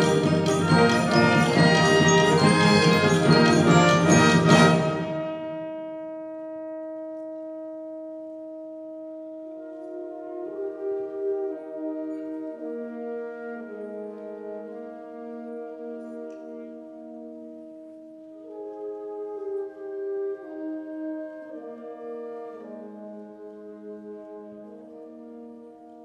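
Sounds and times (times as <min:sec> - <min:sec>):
concert band playing: 0:00.0 - 0:06.1.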